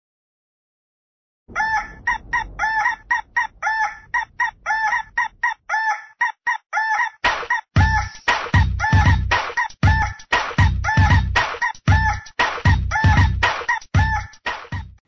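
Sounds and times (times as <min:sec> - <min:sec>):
chopped rooster crow loop: 0:01.5 - 0:14.8
bass-heavy beat: 0:07.8 - 0:15.0.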